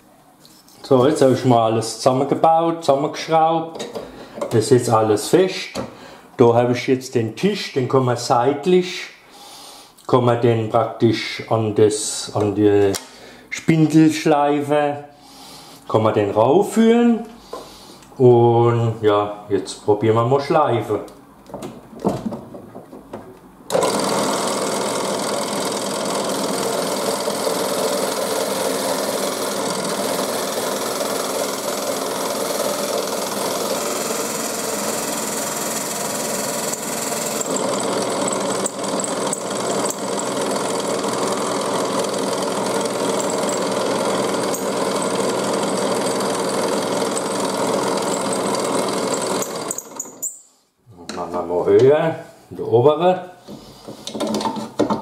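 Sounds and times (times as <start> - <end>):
drill press motor spinning: 23.7 - 50.4
wood sanding: 23.8 - 49.7.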